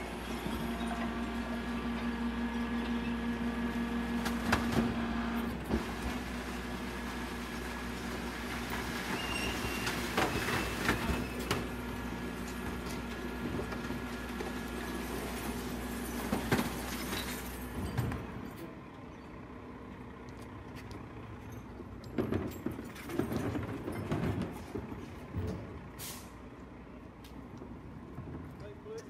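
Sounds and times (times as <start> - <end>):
garbage truck running: 0.0 - 28.5
bins knocking and banging: 22.1 - 25.8.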